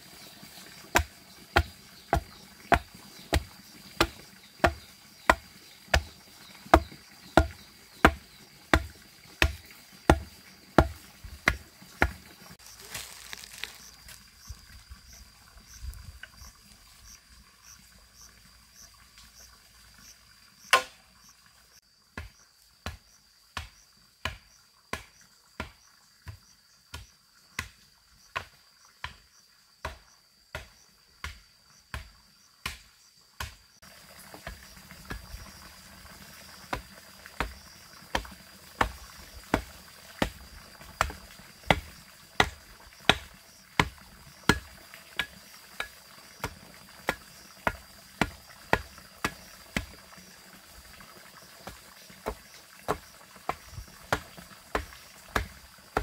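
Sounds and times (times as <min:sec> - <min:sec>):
insects trilling: 0:00.0 - 0:56.0
hand tool striking wood: 0:00.9 - 0:12.2, 0:20.7 - 0:21.0, 0:23.6 - 0:27.8, 0:29.8 - 0:33.6, 0:36.7 - 0:40.4, 0:41.0 - 0:50.0, 0:51.6 - 0:56.0.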